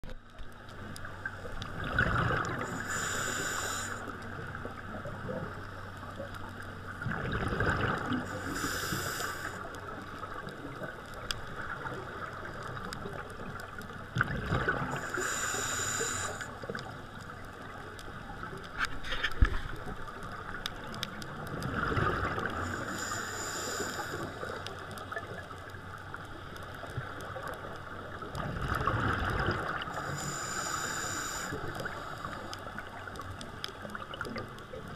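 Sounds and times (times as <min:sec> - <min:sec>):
gurgle of exhaled bubbles: 0:01.2 - 0:03.1, 0:07.0 - 0:08.4, 0:10.3 - 0:15.2, 0:19.0 - 0:22.9, 0:28.1 - 0:30.6
air hissing through regulator: 0:02.6 - 0:04.2, 0:08.3 - 0:09.7, 0:14.9 - 0:16.7, 0:22.6 - 0:24.6, 0:29.9 - 0:32.8.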